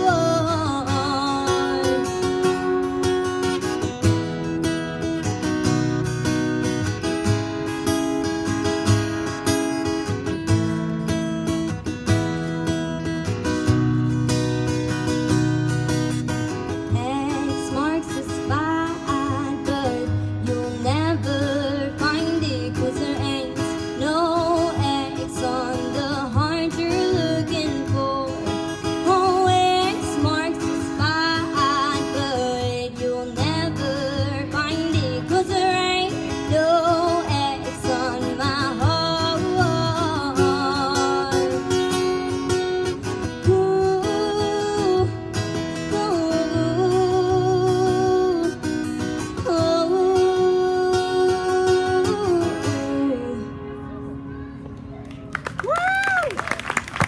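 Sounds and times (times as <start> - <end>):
woman singing country song: 0.0 - 54.2
strummed acoustic guitar: 0.0 - 54.9.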